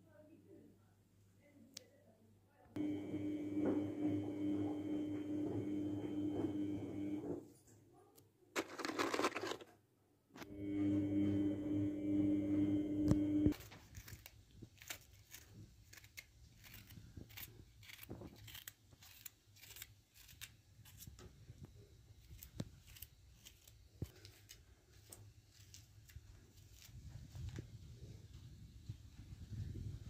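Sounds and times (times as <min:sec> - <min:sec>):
vegetables being cut by hand: 0:13.5 - 0:21.4, 0:22.2 - 0:27.6.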